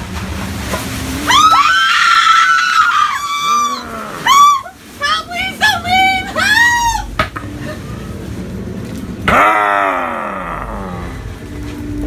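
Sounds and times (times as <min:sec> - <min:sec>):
high-pitched screaming: 0:01.3 - 0:04.7.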